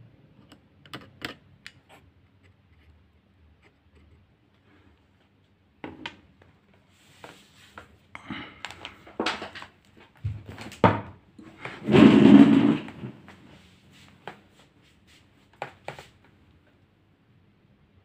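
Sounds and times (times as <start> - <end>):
tools and plastic parts clicking: 0.4 - 1.9
loud longer handling noise: 11.6 - 13.4.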